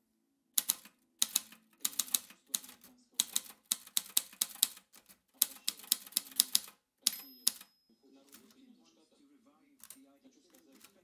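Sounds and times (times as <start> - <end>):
typewriter keys clacking: 0.6 - 7.7, 9.8 - 11.0.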